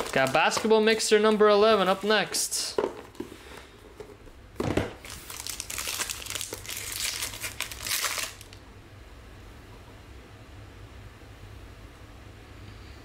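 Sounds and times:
wrapper crinkling and tearing: 0.0 - 2.0, 5.0 - 8.6.

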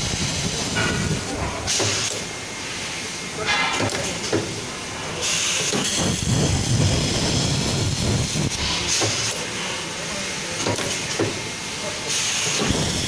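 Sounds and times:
low machine noise: 0.0 - 13.0
welding hiss: 0.0 - 13.0.

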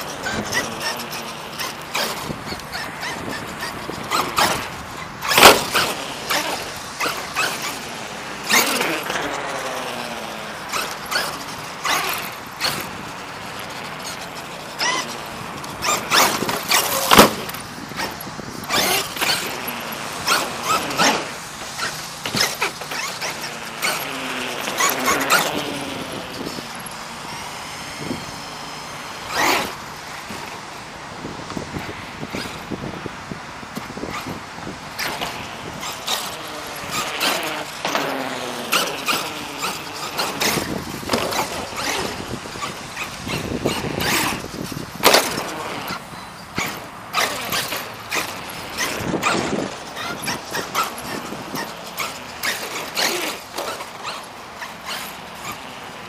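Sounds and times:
toy truck knocks and thumps: 0.0 - 10.0, 13.6 - 26.7, 35.0 - 55.7
electric motor whining: 0.0 - 56.0.

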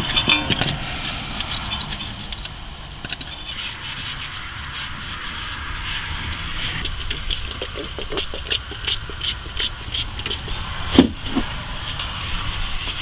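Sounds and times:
plastic scraper rasping on metal: 3.2 - 13.0.

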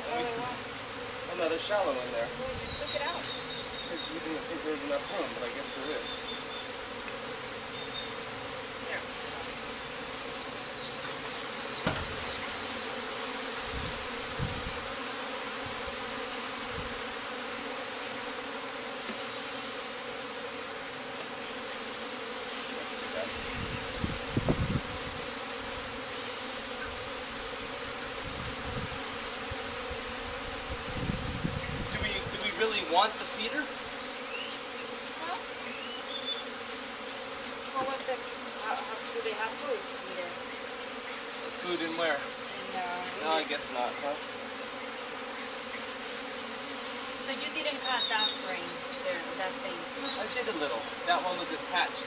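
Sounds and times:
honeybees buzzing: 0.0 - 52.0
dull knocks of wooden hive boxes: 10.8 - 13.3, 18.9 - 19.4, 37.1 - 38.4.

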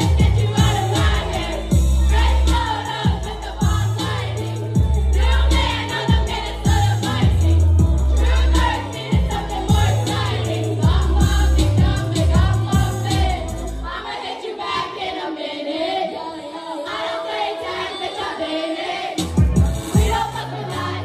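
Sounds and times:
heavy bass beat: 0.0 - 13.8, 19.2 - 20.4
song with sung vocals: 0.0 - 21.0.

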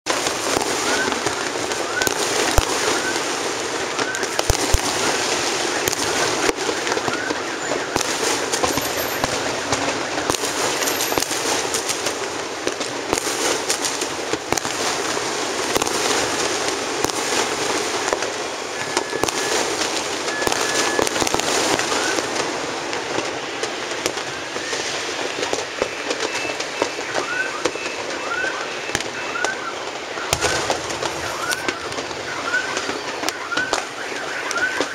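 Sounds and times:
firecrackers crackling: 0.0 - 34.9
loud firework reports: 0.1 - 34.9.

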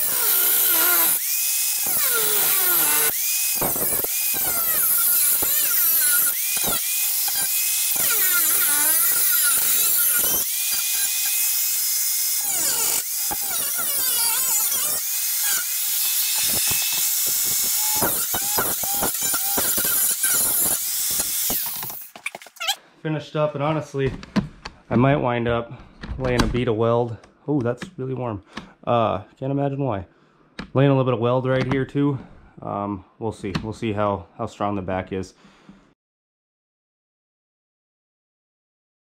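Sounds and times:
angle grinder cutting metal: 0.0 - 22.8.

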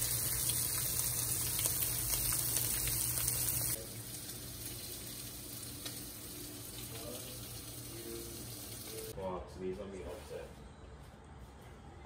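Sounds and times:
meat sizzling in a frying pan: 0.0 - 9.2.

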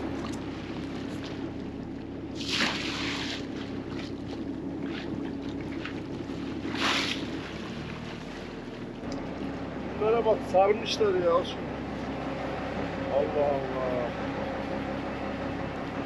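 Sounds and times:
boat engine running: 0.0 - 16.0
water rushing along hull: 0.0 - 16.0
loud splashes: 2.3 - 4.2, 4.9 - 8.4.

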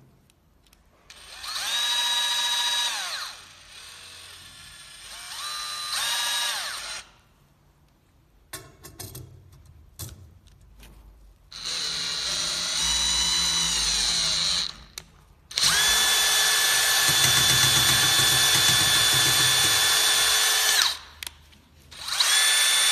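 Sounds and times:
cordless drill spinning: 1.1 - 7.1, 11.5 - 21.1, 21.9 - 22.9.

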